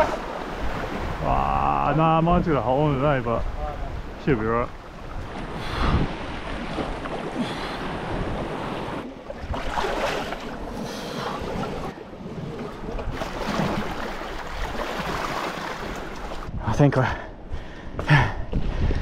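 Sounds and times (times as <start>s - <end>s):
wind buffeting microphone: 0.0s - 10.8s, 11.4s - 19.0s
waves surging against rocks: 0.0s - 16.5s
seawater sloshing around wading person: 4.8s - 16.5s.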